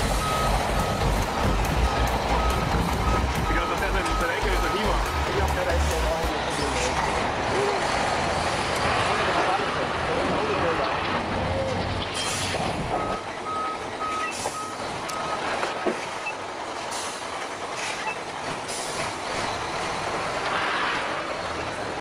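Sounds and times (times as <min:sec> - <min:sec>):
reversing alarm beeping: 0:00.0 - 0:06.0, 0:12.2 - 0:15.5.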